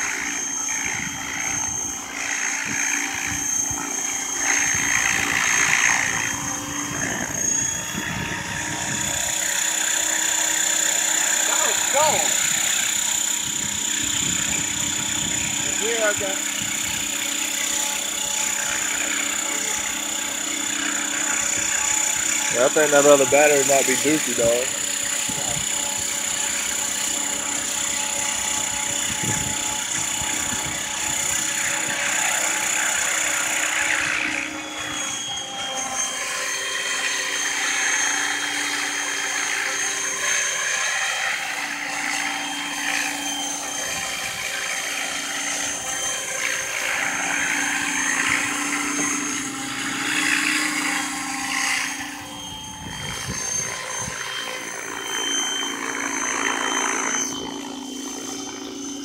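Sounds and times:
model helicopter motor whine: 0:00.0 - 0:59.0
rotors whirring: 0:00.0 - 0:59.0.

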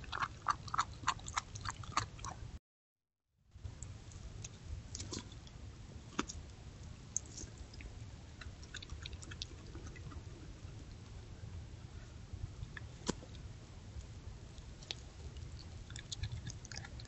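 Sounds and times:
animal chewing and crunching bones: 0:00.0 - 0:02.5, 0:04.3 - 0:06.5, 0:07.1 - 0:11.2, 0:14.5 - 0:17.0.

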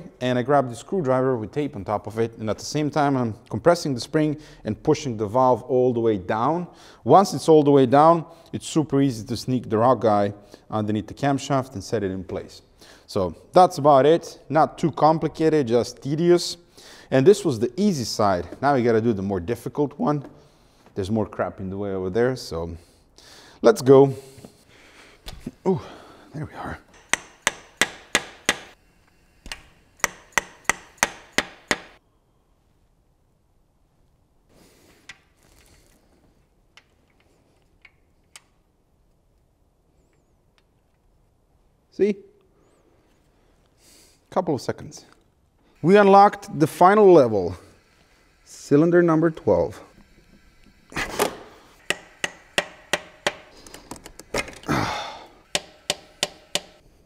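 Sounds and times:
hand tool metallic clicks: 0:26.9 - 0:28.8, 0:55.4 - 0:56.8
ringing metal taps: 0:51.8 - 0:53.6, 0:55.5 - 0:56.8.

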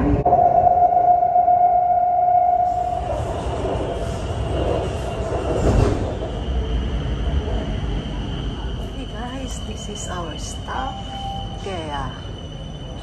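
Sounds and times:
train whine: 0:00.0 - 0:13.0
train wheels rumbling on rail: 0:02.6 - 0:13.0.

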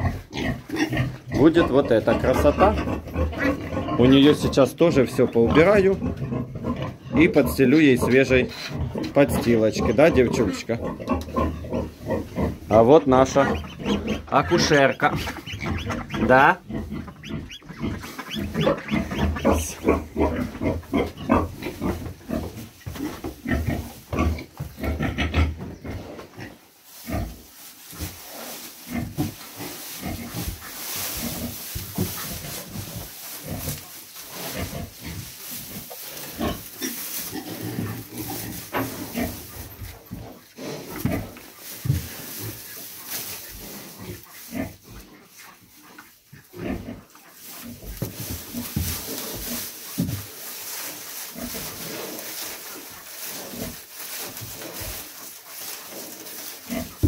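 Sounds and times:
pig grunting: 0:00.0 - 0:27.4, 0:46.4 - 0:50.1
rustling in straw: 0:00.0 - 0:57.0.

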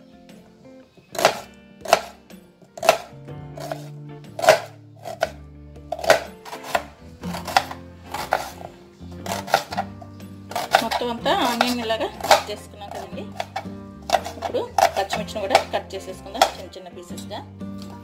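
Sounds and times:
background music: 0:00.0 - 0:18.0
knife tapping cutting board: 0:01.2 - 0:02.2, 0:02.8 - 0:08.6, 0:10.5 - 0:15.8.

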